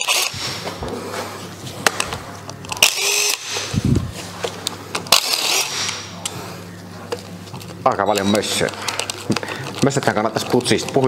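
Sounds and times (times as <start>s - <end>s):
impact wrench whining: 0.0s - 11.0s.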